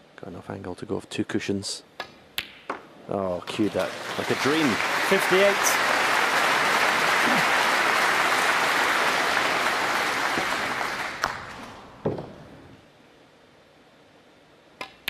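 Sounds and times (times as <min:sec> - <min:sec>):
audience applauding: 0:03.4 - 0:11.9.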